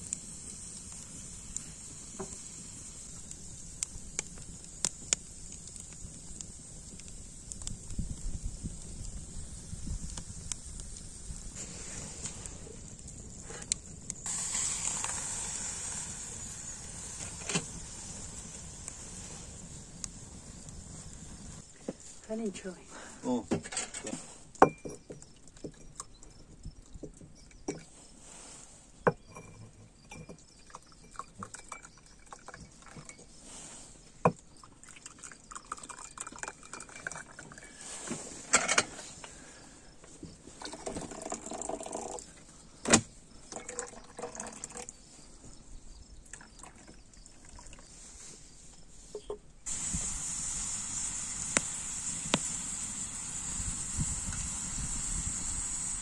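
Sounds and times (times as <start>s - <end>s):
steady high hiss with crackles: 0.0s - 24.6s, 47.9s - 56.0s
glass and kettle clinking: 23.6s - 26.2s, 29.1s - 33.3s, 35.6s - 37.6s
tea pouring into glasses: 30.6s - 33.1s, 34.6s - 37.9s, 40.6s - 42.2s, 43.5s - 44.9s.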